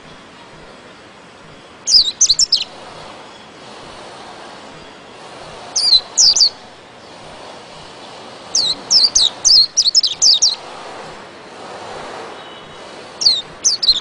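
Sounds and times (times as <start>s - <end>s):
background hiss: 0.0s - 14.0s
bird singing high notes: 1.9s - 3.6s.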